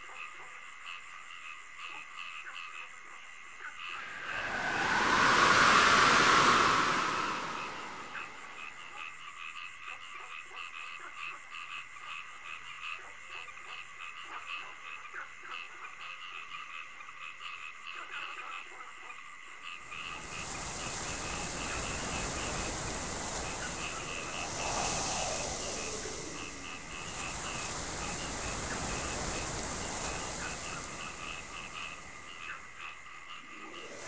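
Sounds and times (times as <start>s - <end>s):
frogs croaking: 0.0s - 34.0s
steady rushing noise: 4.0s - 8.7s, 20.0s - 32.8s, 33.4s - 34.0s.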